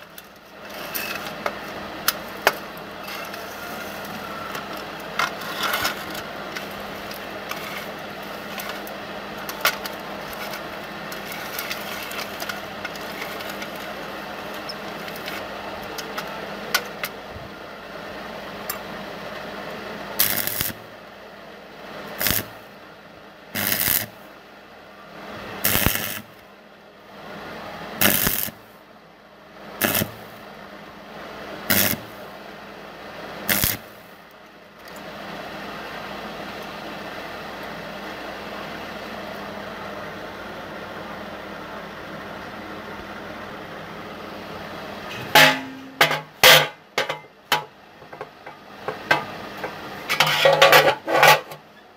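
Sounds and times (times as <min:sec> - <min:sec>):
steady machine hum: 0:00.0 - 0:51.9
electric arc welding bursts: 0:20.2 - 0:20.8, 0:22.2 - 0:22.6, 0:23.6 - 0:24.2, 0:25.6 - 0:26.4, 0:28.0 - 0:28.6, 0:29.8 - 0:30.3, 0:31.7 - 0:32.2, 0:33.4 - 0:34.0.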